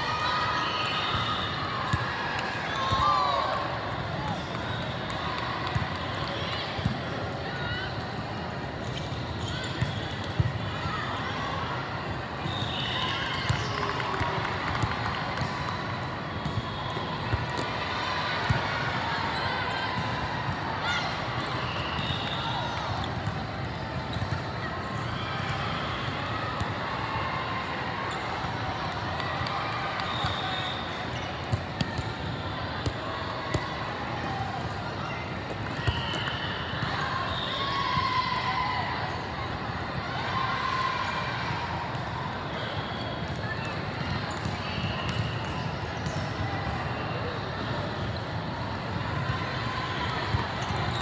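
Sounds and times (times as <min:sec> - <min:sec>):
echoing chatter and shouts: 0:00.0 - 0:51.0.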